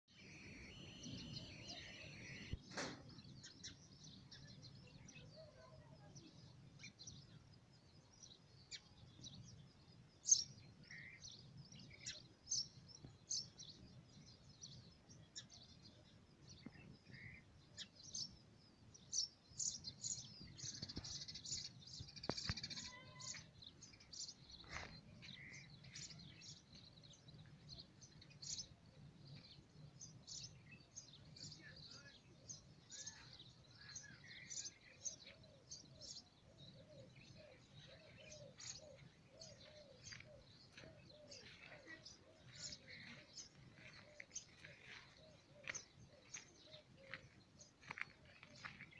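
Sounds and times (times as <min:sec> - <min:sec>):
small birds chirping: 0:00.0 - 0:48.9
lower bird call: 0:00.1 - 0:03.0.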